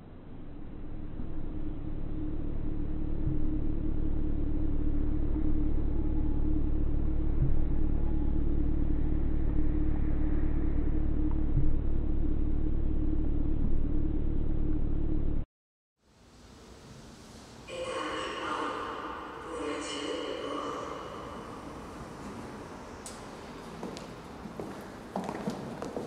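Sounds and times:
held hum: 0:00.0 - 0:15.4
low rumbling drone: 0:00.0 - 0:15.5
soft low pulse: 0:00.0 - 0:15.5.

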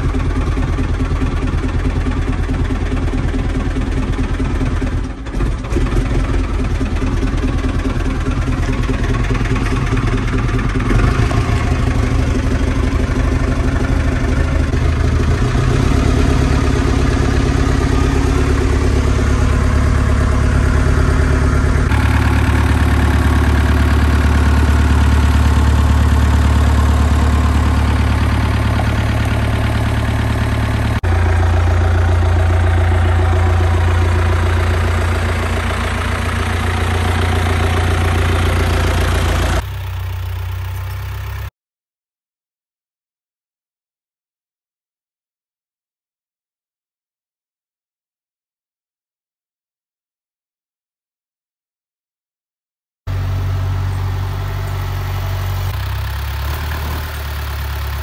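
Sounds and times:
diesel tractor engine idling: 0:00.0 - 0:41.5, 0:53.1 - 0:58.0.

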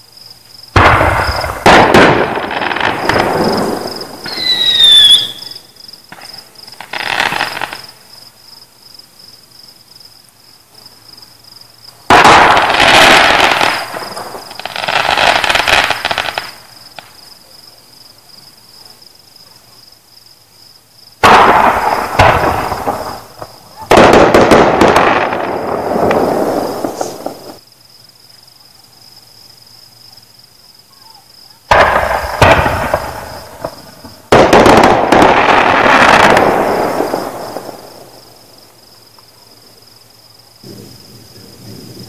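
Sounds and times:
crickets chirping: 0:00.0 - 0:42.0
fireworks exploding: 0:00.7 - 0:08.0, 0:11.9 - 0:17.4, 0:21.2 - 0:27.6, 0:31.6 - 0:39.6
falling firework whistle: 0:00.8 - 0:07.9, 0:21.2 - 0:27.6.

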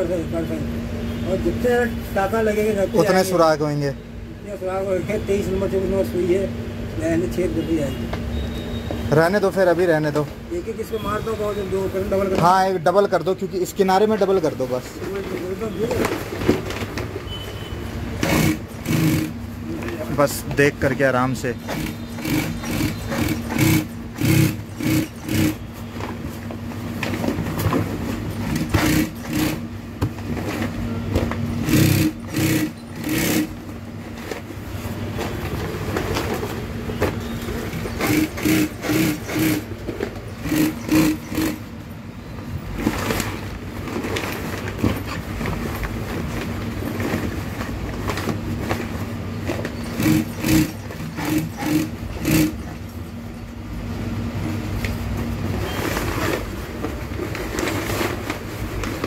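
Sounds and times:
sewing machine motor humming: 0:18.2 - 0:19.4, 0:21.6 - 0:25.7, 0:28.4 - 0:29.7, 0:31.6 - 0:33.6, 0:37.7 - 0:39.8, 0:40.4 - 0:41.7, 0:49.9 - 0:52.8
sewing machine stitching: 0:18.2 - 0:20.0, 0:21.6 - 0:25.7, 0:28.4 - 0:29.7, 0:31.6 - 0:33.6, 0:37.7 - 0:39.7, 0:40.4 - 0:41.7, 0:49.7 - 0:52.8.

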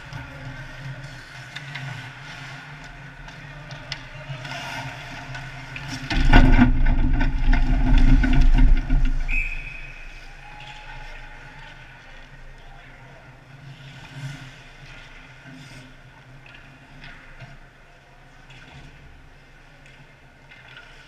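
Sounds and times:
rumbling thump and scrape: 0:05.8 - 0:10.1
referee's whistle: 0:09.3 - 0:10.2.

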